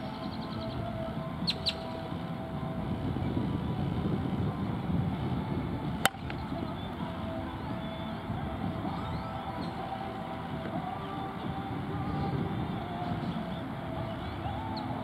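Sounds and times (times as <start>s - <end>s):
bird chirps: 0.0s - 2.0s, 8.9s - 10.0s
low background rumble: 0.0s - 15.0s
bat hitting softball: 6.0s - 6.4s.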